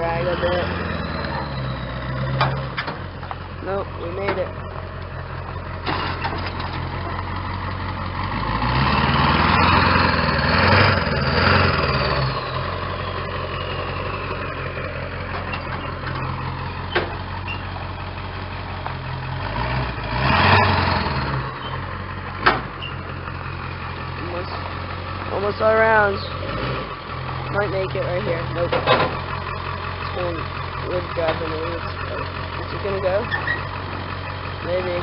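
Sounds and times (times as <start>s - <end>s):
truck engine idling and revving: 0.0s - 35.0s.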